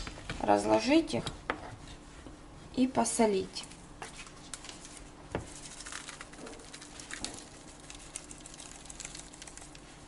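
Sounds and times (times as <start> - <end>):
salt shaker rattling: 5.5 - 9.9.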